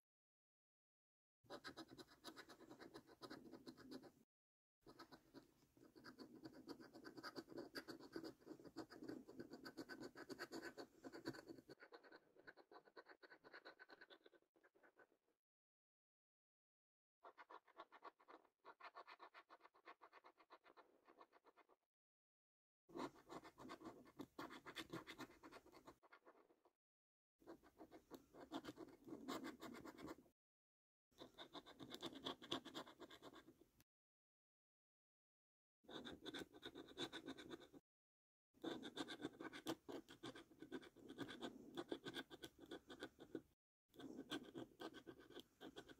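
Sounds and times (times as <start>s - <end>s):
coin scratching a scratch card: 1.5s - 4.2s, 4.9s - 15.1s, 17.2s - 21.5s, 23.0s - 26.5s, 27.5s - 30.2s, 31.2s - 33.5s, 35.9s - 37.8s, 38.6s - 45.9s
coin scraping scratch card: 38.6s - 43.4s, 44.0s - 45.9s.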